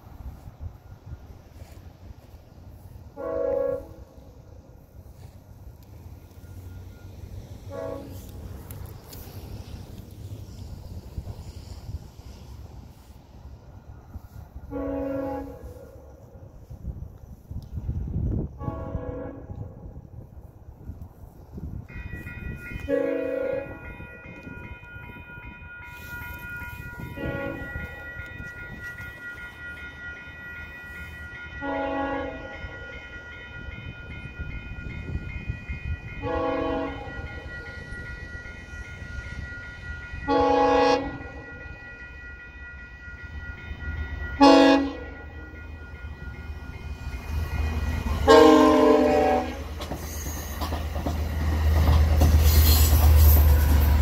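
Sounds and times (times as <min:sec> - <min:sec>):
train rumble: 0:00.0 - 0:54.0
train horn blasts: 0:03.1 - 0:04.4, 0:07.6 - 0:08.4, 0:14.6 - 0:16.4, 0:18.5 - 0:19.9, 0:22.7 - 0:24.0, 0:27.0 - 0:28.2, 0:31.6 - 0:33.0, 0:36.2 - 0:37.4, 0:40.3 - 0:41.6, 0:44.4 - 0:45.6, 0:48.1 - 0:49.8
level crossing bells ringing: 0:21.9 - 0:49.1.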